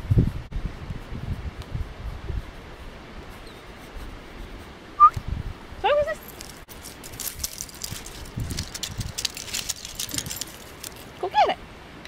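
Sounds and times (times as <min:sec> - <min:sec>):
handling clicks and rustles: 0:06.1 - 0:11.3.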